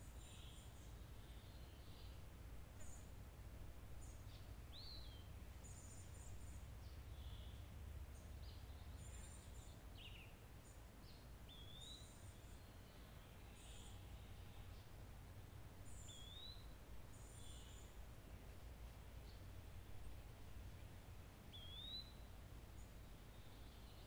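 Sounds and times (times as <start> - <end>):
birds chirping: 0.0 - 15.0, 15.7 - 18.1, 18.9 - 24.0
whistled bird calls: 11.5 - 12.2, 15.9 - 16.6, 21.5 - 22.2.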